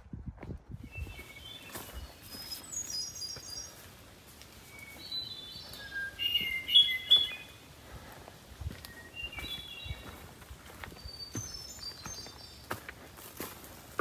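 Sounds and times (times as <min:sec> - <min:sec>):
songbirds whistling: 0:00.8 - 0:07.8, 0:08.7 - 0:12.9.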